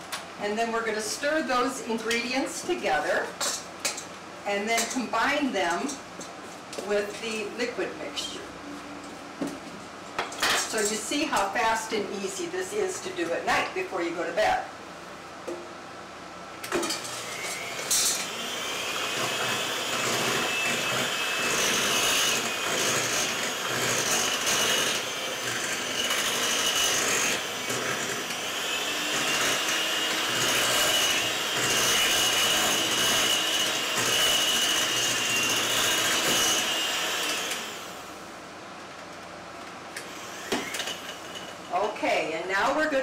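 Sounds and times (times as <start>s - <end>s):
electric mixer whining: 17.0s - 38.1s, 40.0s - 41.5s.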